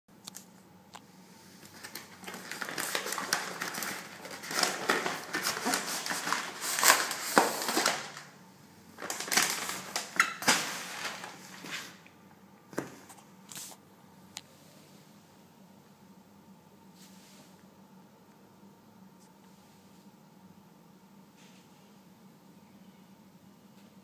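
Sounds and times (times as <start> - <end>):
paper crinkling and rustling: 1.6 - 8.4, 9.0 - 12.1.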